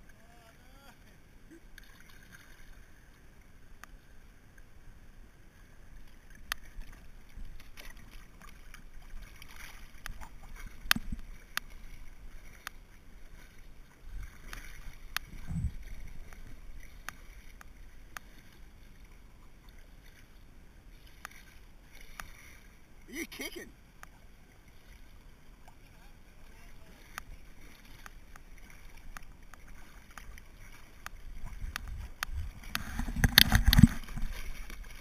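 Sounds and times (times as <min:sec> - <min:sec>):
river water splashing: 0:00.0 - 0:35.0
low bumps: 0:15.3 - 0:16.6.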